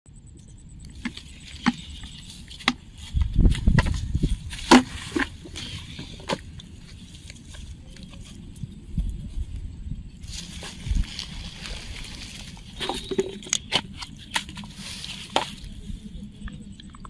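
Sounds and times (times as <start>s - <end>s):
twigs crackling underfoot: 0.9s - 16.7s
footsteps through dry straw: 10.2s - 16.1s.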